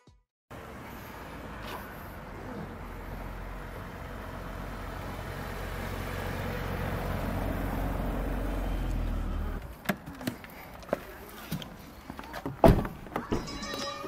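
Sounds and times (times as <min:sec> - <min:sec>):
car engine hum: 0:00.5 - 0:10.4
road noise: 0:00.5 - 0:14.0.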